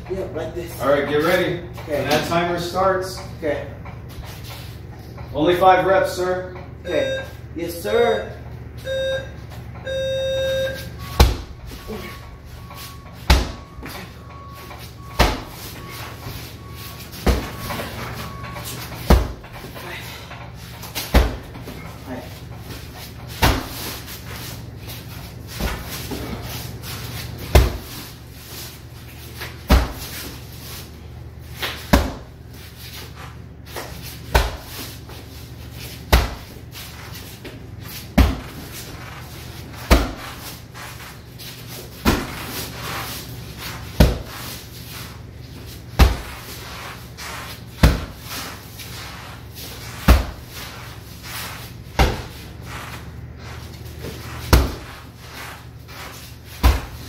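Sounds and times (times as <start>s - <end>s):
heavy bag being punched: 11.2s - 11.9s, 13.2s - 13.8s, 19.0s - 19.6s, 27.4s - 27.9s, 39.8s - 40.4s, 42.0s - 42.5s, 43.9s - 44.4s, 46.0s - 46.5s, 47.8s - 48.3s, 49.9s - 50.6s, 51.9s - 52.4s, 54.4s - 55.1s, 56.5s - 57.0s.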